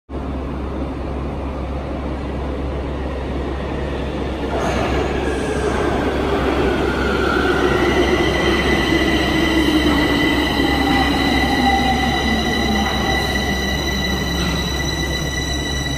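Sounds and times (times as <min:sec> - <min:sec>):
metro train approaching: 0:00.1 - 0:15.9
high squeal: 0:04.6 - 0:15.9.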